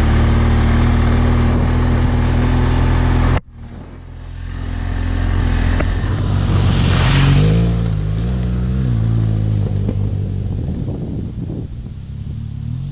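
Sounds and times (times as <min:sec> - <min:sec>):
motorcycle engine running: 0:00.0 - 0:12.9
wind noise on microphone: 0:00.0 - 0:12.9.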